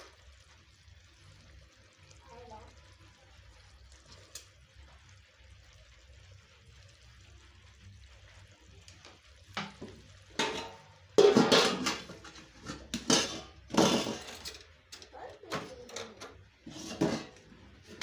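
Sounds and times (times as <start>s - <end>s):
metal pot clattering on stove: 9.5s - 18.0s.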